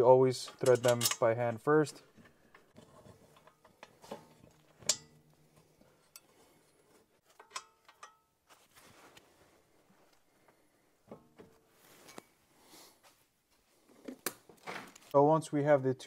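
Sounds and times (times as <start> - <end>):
metallic bolt clicks and clinks: 0.4 - 1.3, 2.5 - 5.3, 7.3 - 8.3.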